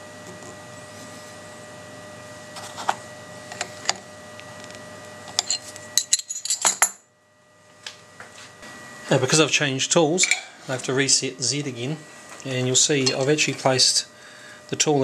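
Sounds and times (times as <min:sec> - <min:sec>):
electrical hum: 0:00.0 - 0:15.0.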